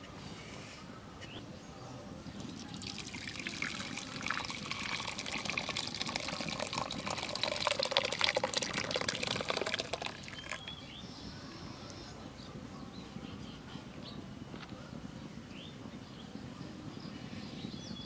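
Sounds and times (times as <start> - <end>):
liquid splashing and trickling: 2.4 - 10.8.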